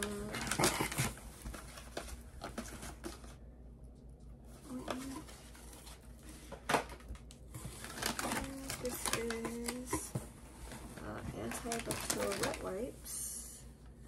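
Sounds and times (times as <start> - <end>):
plastic packages crinkling: 6.8 - 10.2, 11.0 - 12.9.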